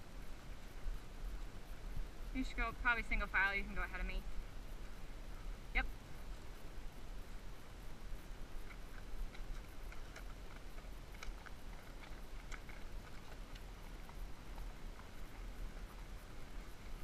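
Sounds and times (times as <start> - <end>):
hooves and tack clicking: 7.8 - 17.0.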